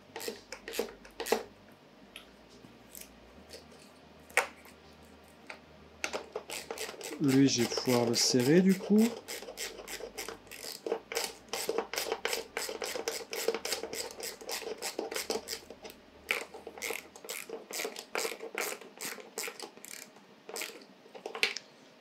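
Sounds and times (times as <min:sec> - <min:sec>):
ratchet wrench clicking: 0:06.1 - 0:15.7, 0:16.3 - 0:20.8.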